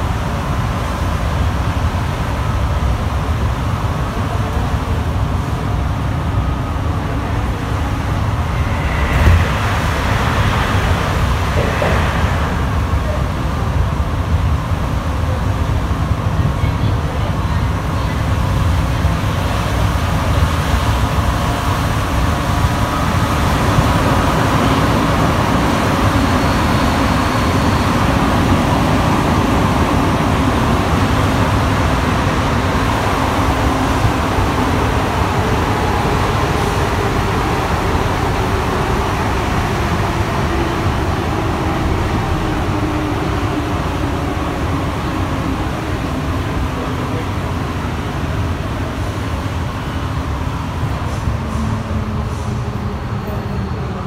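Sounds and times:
metro train rumble: 0.0 - 54.0.

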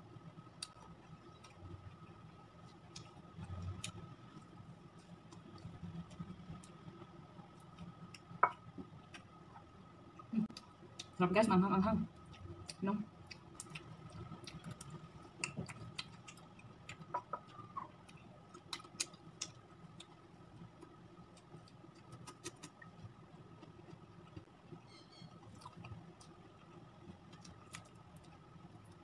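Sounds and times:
faint steady hum: 0.0 - 29.0
chewing and lip smacking: 12.2 - 20.2, 25.1 - 28.4.

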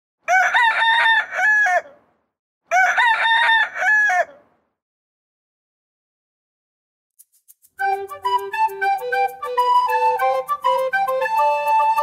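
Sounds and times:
rooster crowing: 0.3 - 2.0, 2.7 - 4.5.

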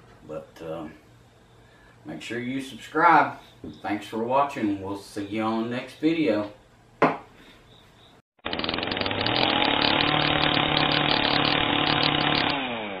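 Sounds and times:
sharp knock: 7.0 - 7.3
small engine at high revs: 8.4 - 13.0.

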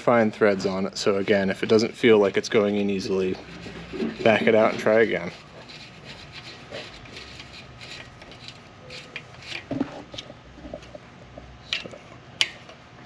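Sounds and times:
hex key rubbing and ticking: 3.7 - 9.6.

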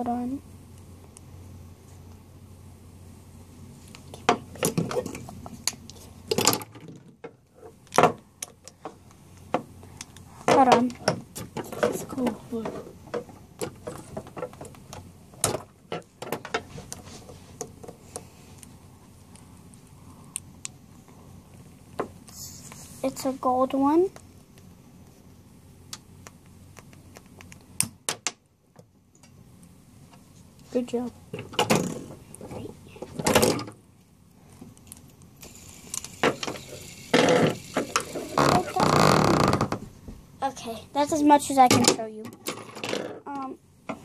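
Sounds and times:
fidget spinner clicks: 34.8 - 38.7.

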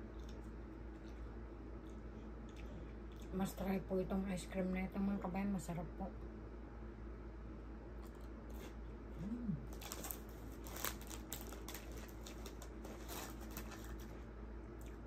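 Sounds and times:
person humming: 9.2 - 9.8.

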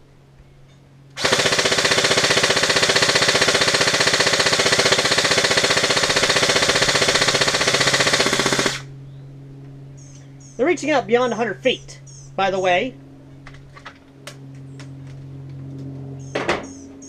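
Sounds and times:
airsoft rifle rapid fire: 1.2 - 8.9.

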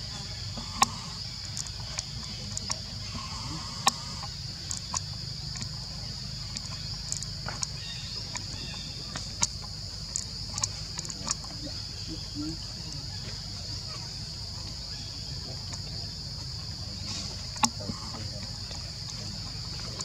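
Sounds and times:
insect chorus drone: 0.0 - 20.0
sharp clicks and snaps: 0.8 - 2.8, 3.8 - 5.8, 6.4 - 7.7, 8.3 - 11.5.

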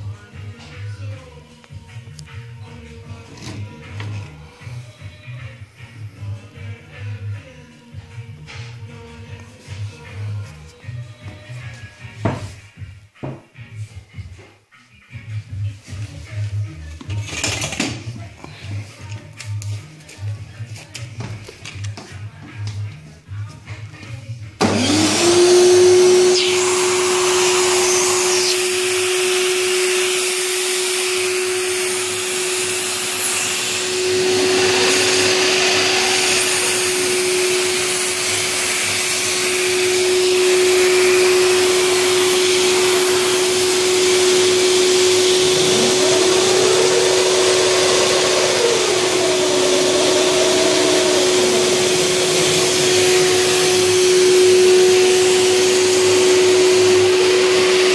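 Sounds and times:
vacuum cleaner whine: 24.6 - 57.9.

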